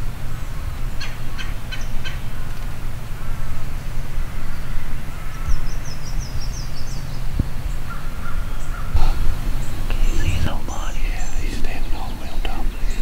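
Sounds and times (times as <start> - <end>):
birds calling: 0.0 - 13.0
wind rumble on microphone: 0.0 - 13.0
high bird chirps: 3.8 - 13.0.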